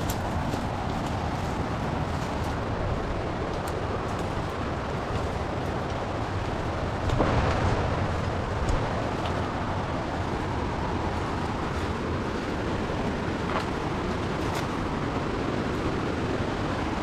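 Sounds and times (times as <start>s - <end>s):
twigs snapping underfoot: 0.0s - 10.4s, 11.1s - 15.1s
rushing rumble: 0.0s - 17.0s.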